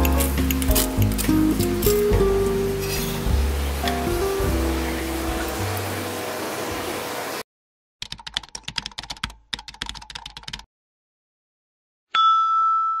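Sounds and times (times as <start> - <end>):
keyboard typing clicks: 8.0 - 10.6.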